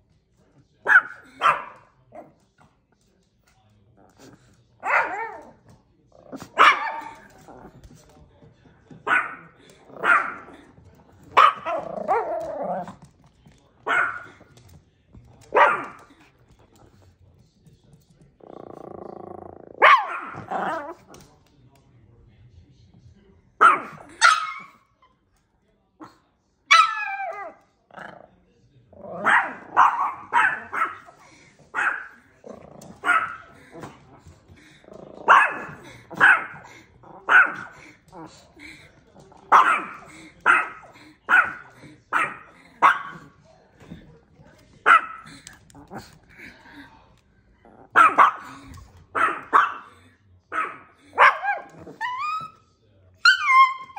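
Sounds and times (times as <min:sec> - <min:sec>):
small dogs barking: 0:00.8 - 0:02.4, 0:04.8 - 0:05.6, 0:06.2 - 0:07.7, 0:09.0 - 0:12.9, 0:13.8 - 0:14.5, 0:15.4 - 0:16.1, 0:19.8 - 0:21.2, 0:23.6 - 0:24.9, 0:26.7 - 0:27.7, 0:29.0 - 0:38.5, 0:39.3 - 0:43.4, 0:44.8 - 0:46.2, 0:47.8 - 0:52.6, 0:53.2 - 0:53.9
small dogs yapping: 0:26.7 - 0:27.6, 0:50.5 - 0:52.6, 0:53.2 - 0:53.9.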